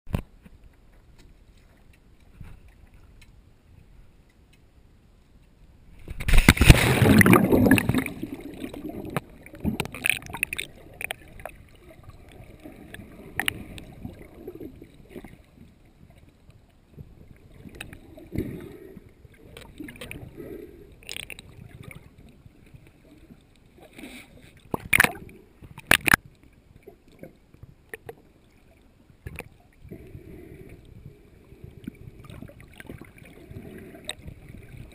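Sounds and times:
underwater gurgling and sloshing: 0:00.1 - 0:34.9
loud water splash: 0:06.2 - 0:09.0.

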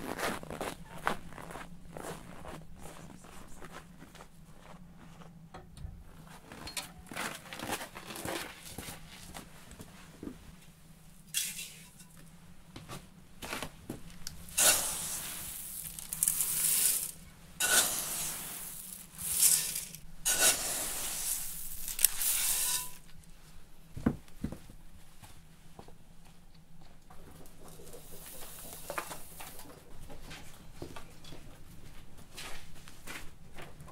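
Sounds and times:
grain pouring into metal bowl: 0:14.5 - 0:23.1.

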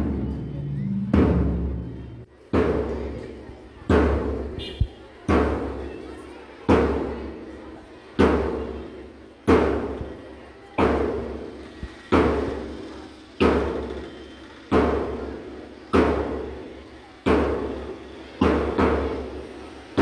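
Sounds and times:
drum beaten slowly: 0:00.0 - 0:05.8, 0:08.2 - 0:10.2, 0:14.7 - 0:20.0.

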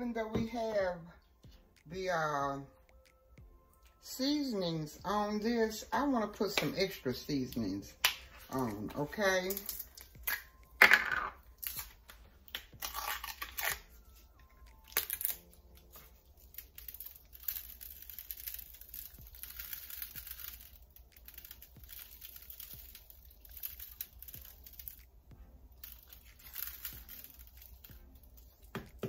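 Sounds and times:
seasoning shaker rattling: 0:16.0 - 0:25.0, 0:25.8 - 0:28.8.

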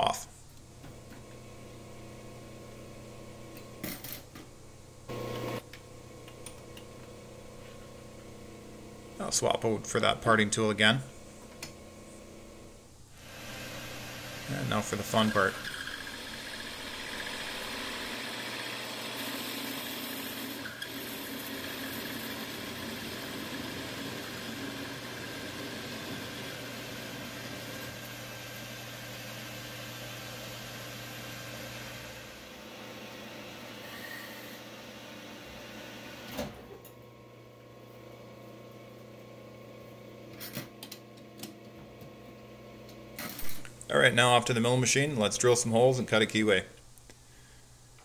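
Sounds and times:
metal lathe humming: 0:05.1 - 0:05.7, 0:11.2 - 0:33.1.

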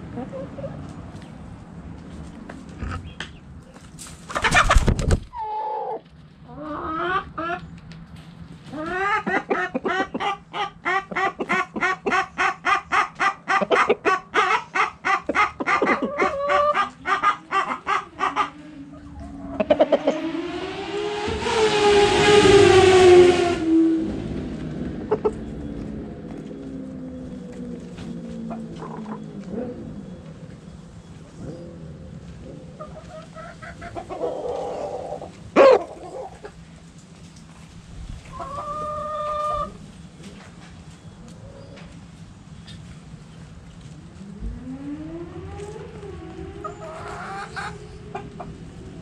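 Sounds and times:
hen clucking rapidly: 0:04.3 - 0:05.1, 0:08.8 - 0:20.0
loud burst of noise: 0:19.6 - 0:24.0.

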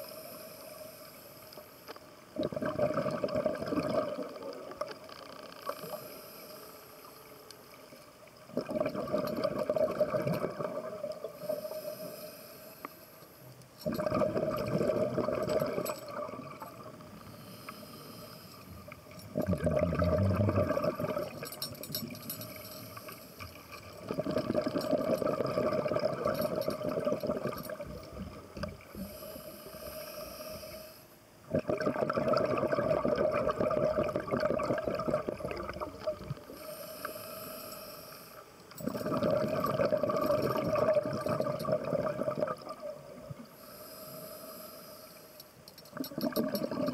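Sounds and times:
hissing regulator inhale: 0:00.0 - 0:01.8, 0:05.5 - 0:07.4, 0:11.2 - 0:13.4, 0:17.1 - 0:19.0, 0:28.9 - 0:31.2, 0:36.4 - 0:38.6, 0:43.5 - 0:45.6
bubbling exhaled air: 0:02.4 - 0:04.8, 0:08.5 - 0:12.2, 0:13.8 - 0:23.2, 0:23.8 - 0:30.9, 0:31.5 - 0:38.1, 0:38.8 - 0:44.7, 0:46.0 - 0:46.9.

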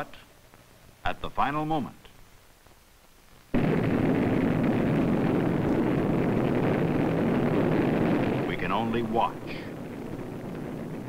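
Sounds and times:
rocket motor exhaust roar: 0:03.6 - 0:11.0.

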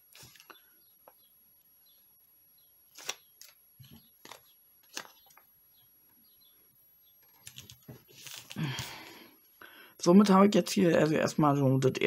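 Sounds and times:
paper and tape crinkling: 0:02.9 - 0:05.5, 0:07.2 - 0:08.8.

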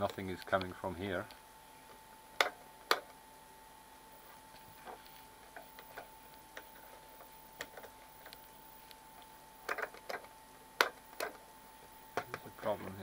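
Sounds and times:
faint steady tone: 0:00.0 - 0:13.0.

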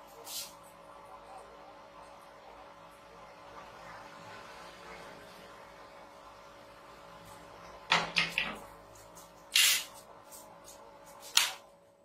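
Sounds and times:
faint steady hum: 0:00.0 - 0:12.0
spot welder snapping: 0:09.5 - 0:09.9.

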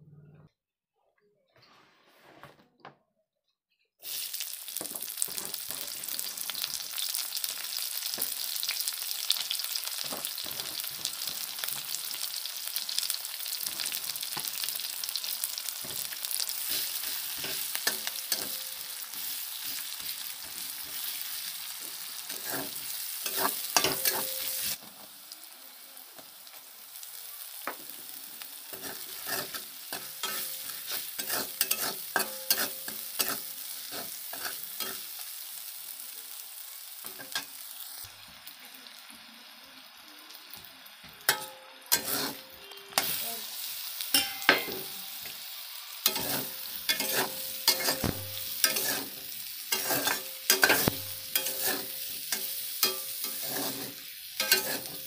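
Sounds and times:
onions sizzling in hot oil: 0:04.0 - 0:55.0
spatula scraping a metal wok: 0:13.6 - 0:24.8, 0:28.7 - 0:35.3, 0:41.3 - 0:43.3, 0:44.1 - 0:45.3, 0:46.0 - 0:55.0.

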